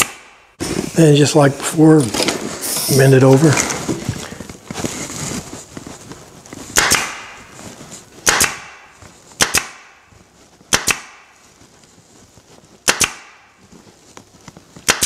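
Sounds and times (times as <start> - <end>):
staple gun firing: 12.9 - 13.3.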